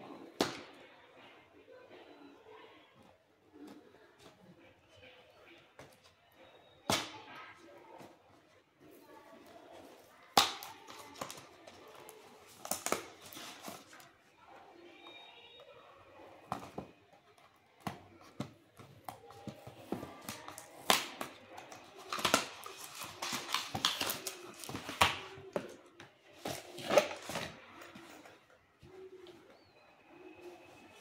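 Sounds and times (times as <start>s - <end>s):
cardboard packaging rustling: 21.7s - 28.2s.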